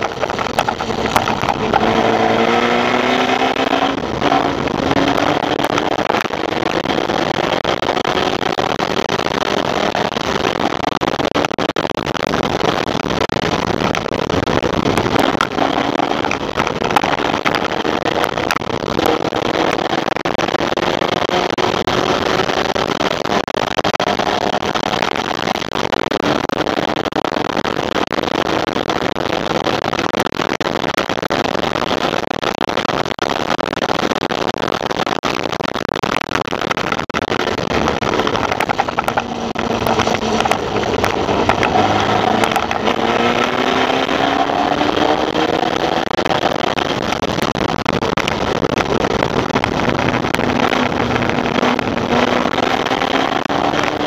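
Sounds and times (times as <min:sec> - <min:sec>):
race car engine running hard: 0:00.0 - 0:08.4, 0:37.6 - 0:46.9
wind and road noise: 0:00.0 - 0:54.0.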